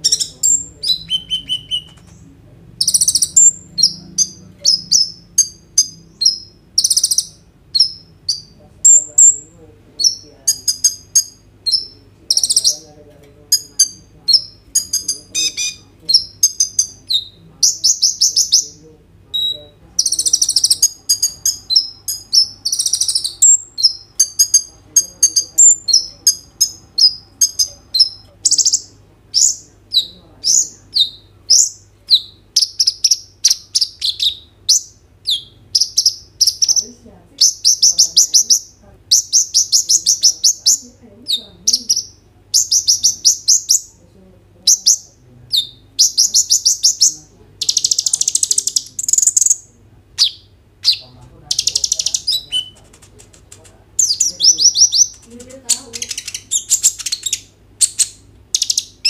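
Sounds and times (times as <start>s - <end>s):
sunbird singing high trills: 0.0s - 2.1s, 54.0s - 59.0s.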